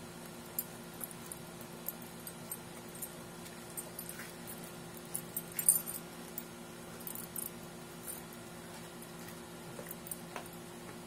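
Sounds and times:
metal collar tags jingling: 0.5s - 8.3s.

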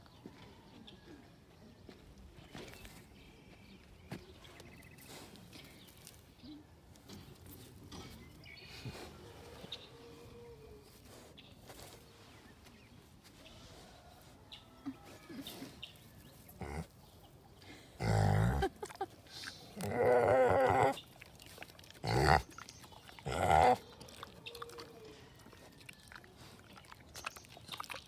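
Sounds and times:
rustling and snuffling: 4.4s - 27.4s
pig grunting: 16.6s - 17.0s, 18.0s - 18.7s, 19.8s - 21.0s, 21.9s - 25.0s.

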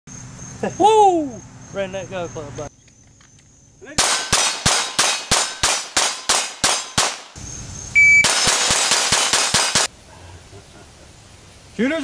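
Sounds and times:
pistol shots: 4.0s - 7.4s, 8.2s - 9.9s
high beep: 8.0s - 8.3s.

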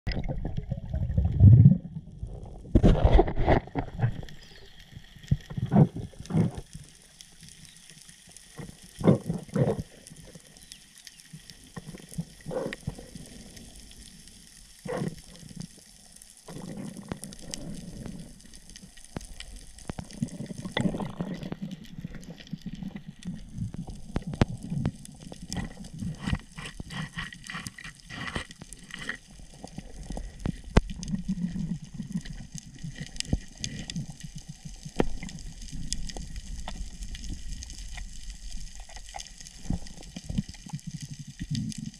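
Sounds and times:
low underwater rumble: 0.1s - 7.0s.

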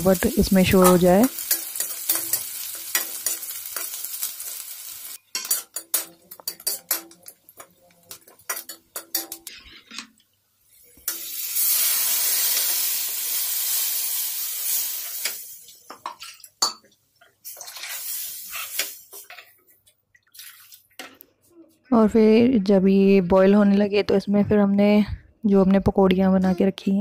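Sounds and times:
metal ladle scraping a pan: 8.5s - 10.1s, 17.4s - 19.5s.

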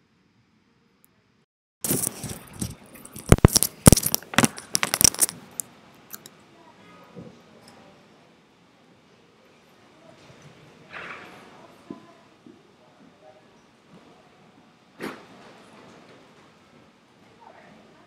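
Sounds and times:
rustling: 1.8s - 6.3s.

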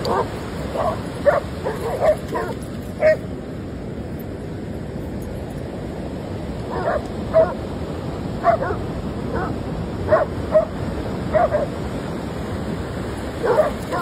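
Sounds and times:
dog barking: 0.0s - 3.2s, 6.7s - 7.6s, 8.4s - 10.7s, 11.3s - 11.7s, 13.4s - 14.0s
ocean surf rushing: 0.0s - 14.0s.

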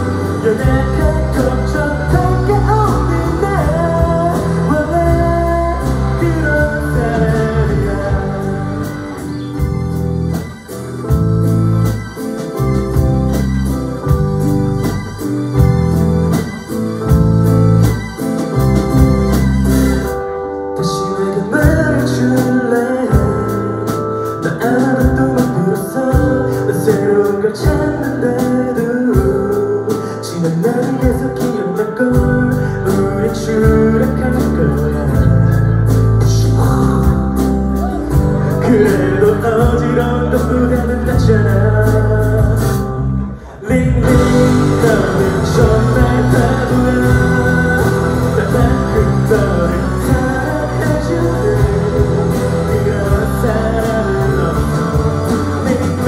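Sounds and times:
live band with lead vocal: 0.0s - 56.0s.

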